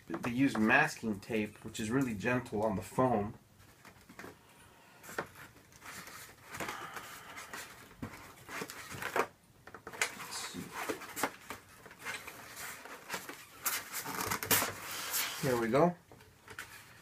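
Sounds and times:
rustling of foam packaging: 3.6s - 17.0s.

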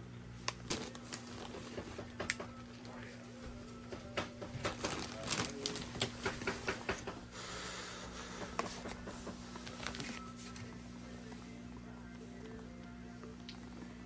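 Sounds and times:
low steady hum: 0.0s - 14.0s
plastic bag crinkling: 0.5s - 1.8s, 4.6s - 6.4s
paper plates and knife tapping: 3.9s - 7.2s.

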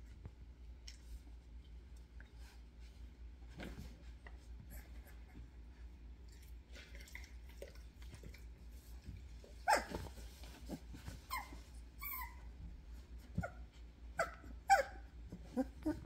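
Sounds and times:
puppies crying: 11.3s - 12.5s, 14.2s - 16.0s.

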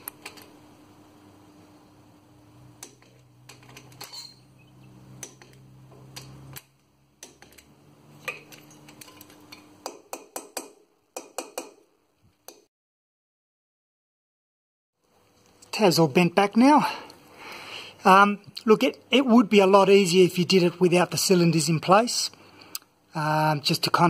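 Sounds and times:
screwdriver tapping metal: 5.2s - 11.8s.

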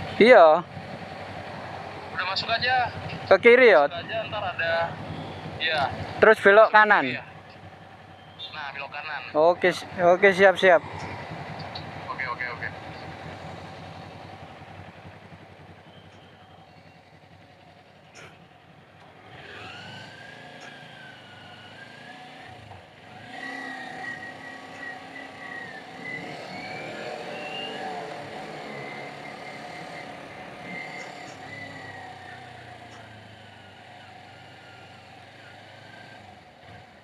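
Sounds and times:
motorcycle engine revving: 0.0s - 37.0s
road and wind noise: 0.0s - 37.0s.

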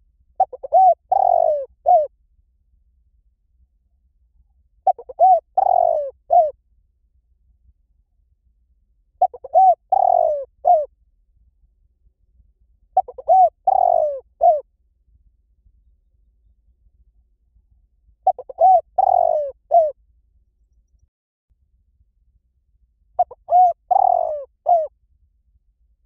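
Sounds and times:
dove cooing: 0.4s - 2.1s, 4.8s - 6.5s, 9.2s - 10.9s, 13.0s - 14.6s, 18.2s - 20.0s, 23.2s - 24.9s.

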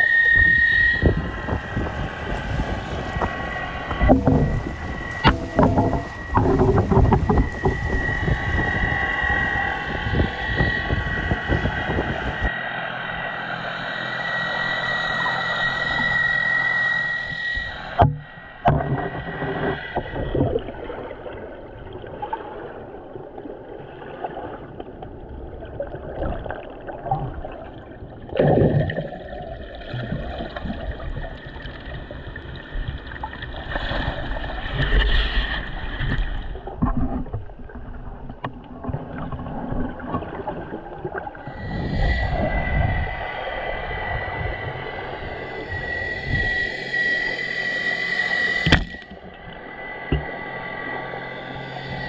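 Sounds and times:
water sloshing and gurgling: 0.0s - 52.0s
water splash: 0.3s - 12.5s.

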